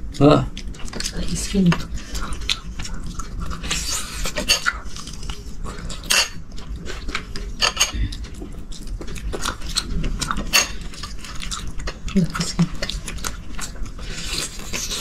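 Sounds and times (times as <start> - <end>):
cutlery and dishes clinking: 7.6 - 8.0, 10.3 - 10.9.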